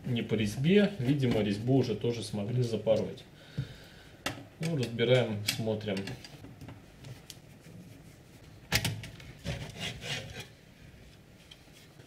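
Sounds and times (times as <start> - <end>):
metal parts scraping and rubbing: 9.4 - 10.6.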